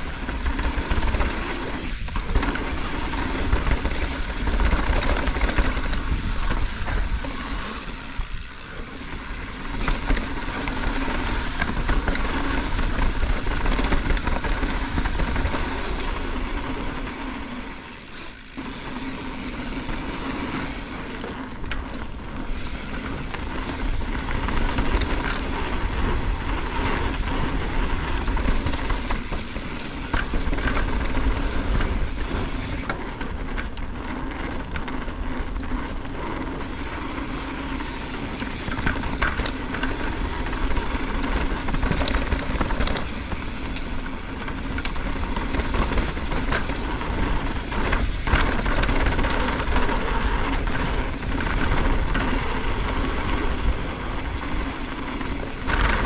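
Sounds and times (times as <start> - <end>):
wind rushing over microphone: 0.0 - 18.6
bike rattling over bumps: 0.0 - 56.0
tyres rolling on dirt: 0.0 - 56.0.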